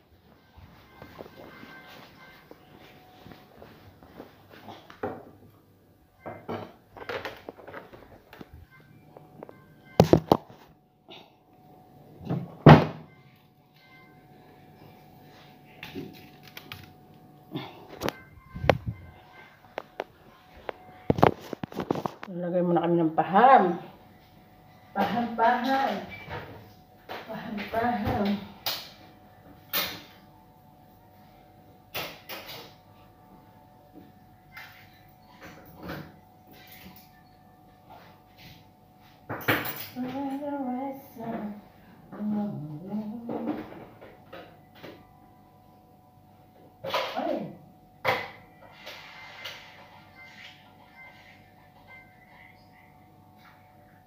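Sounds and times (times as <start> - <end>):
faint music: 0.0 - 54.0
kitchenware clattering and scraping: 6.2 - 8.2, 39.3 - 40.4.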